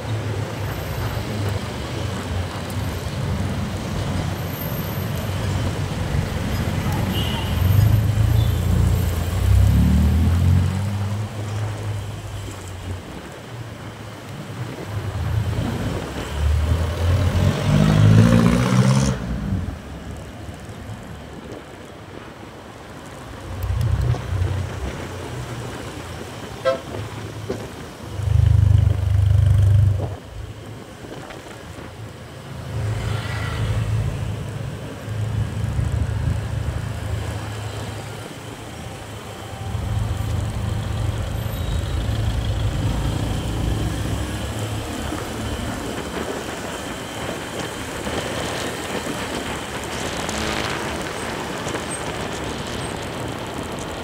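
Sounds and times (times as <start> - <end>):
road traffic: 0.0 - 54.0
vehicle horn tooting: 7.1 - 7.7, 26.6 - 27.0.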